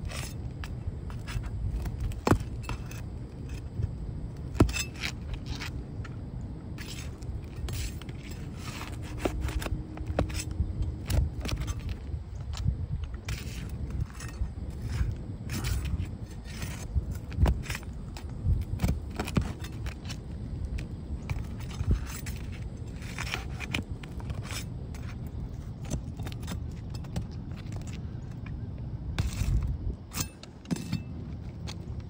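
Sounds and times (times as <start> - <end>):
pry bar scraping shingles: 0.0 - 6.2, 6.8 - 28.3, 29.1 - 32.0.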